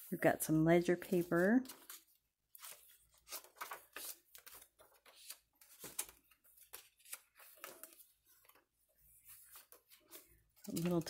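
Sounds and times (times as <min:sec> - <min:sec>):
paper pages rustling: 0:01.0 - 0:11.0.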